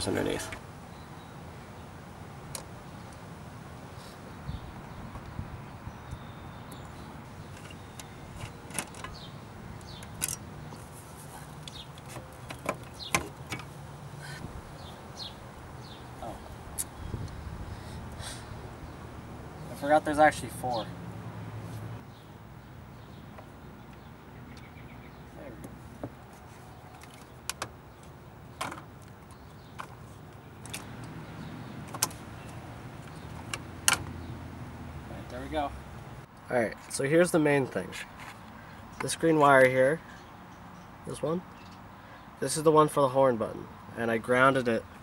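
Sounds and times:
bird chirps: 0:04.0 - 0:10.2, 0:22.0 - 0:25.6.

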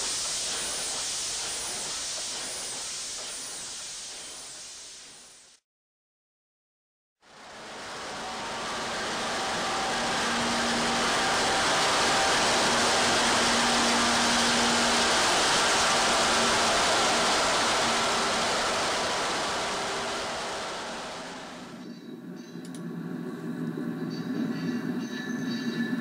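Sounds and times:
diesel locomotive passing: 0:07.3 - 0:26.0.

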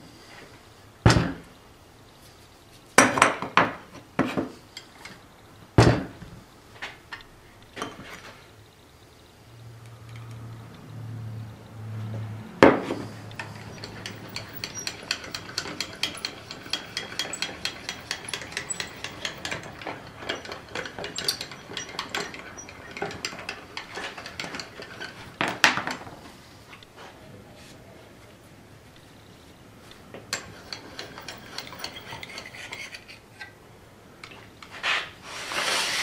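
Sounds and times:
metal parts clanking: 0:13.0 - 0:26.1, 0:30.2 - 0:33.6
feed screw clicking: 0:13.3 - 0:25.2, 0:30.4 - 0:33.1.

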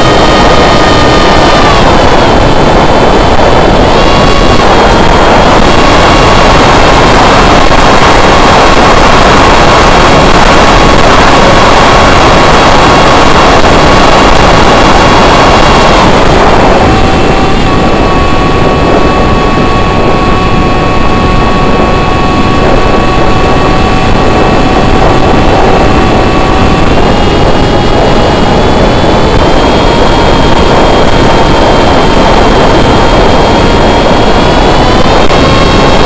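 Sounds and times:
electric motor and propeller whining: 0:00.0 - 0:36.0
wind rush: 0:00.0 - 0:36.0.

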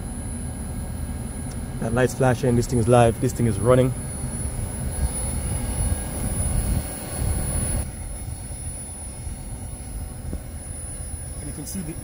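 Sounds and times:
air conditioner unit rumbling: 0:00.0 - 0:12.0
hiss: 0:03.3 - 0:12.0.

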